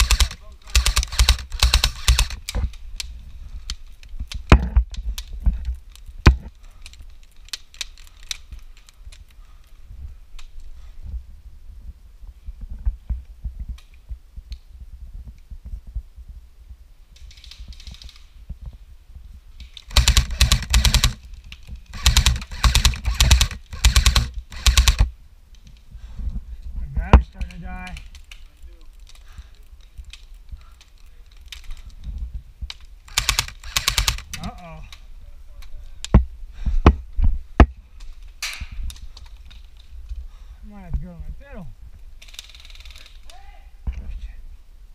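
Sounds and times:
airsoft gun full-auto bursts: 0.0 - 2.5, 19.9 - 21.2, 21.9 - 25.1, 33.1 - 34.4.

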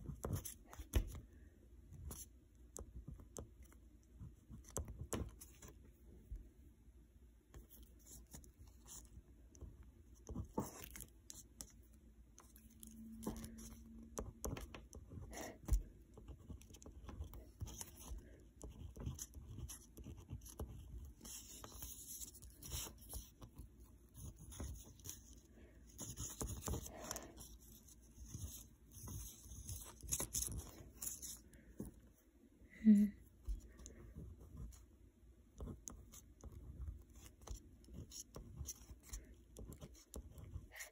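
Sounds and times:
pen scratching on paper: 0.0 - 1.2, 10.2 - 11.8, 12.4 - 32.0, 33.4 - 34.9, 35.5 - 40.9.

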